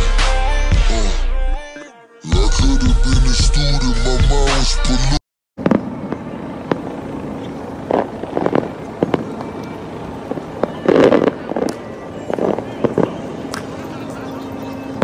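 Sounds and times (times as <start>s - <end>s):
background rumble: 5.6s - 13.5s
distant fireworks bangs and pops: 5.6s - 15.0s.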